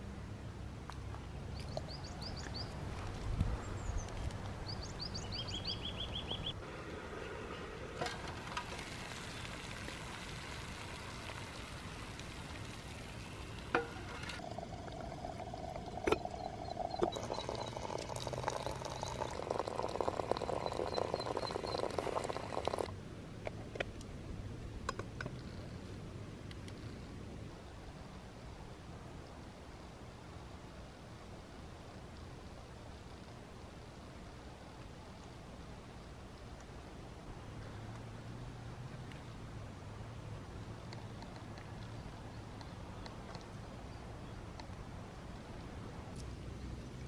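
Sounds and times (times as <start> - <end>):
birds chirping: 1.5 - 22.9
hot water pouring into teapot: 6.6 - 22.9.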